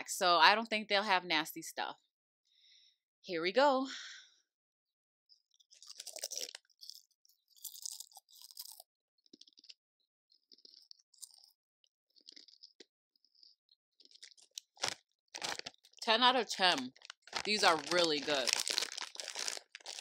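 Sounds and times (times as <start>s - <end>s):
person chewing potato chips: 5.5s - 16.0s, 16.8s - 20.0s.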